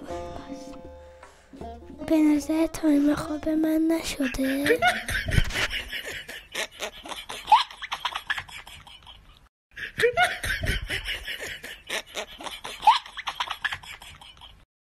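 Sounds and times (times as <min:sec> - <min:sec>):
people laughing: 0:04.5 - 0:09.3.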